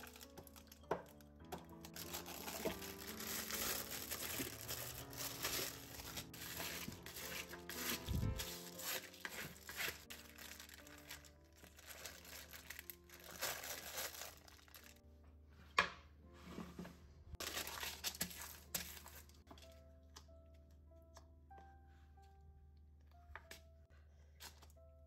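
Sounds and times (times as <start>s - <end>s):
baking paper crinkling: 0.0s - 15.0s, 17.3s - 19.8s
soft background music: 0.0s - 25.0s.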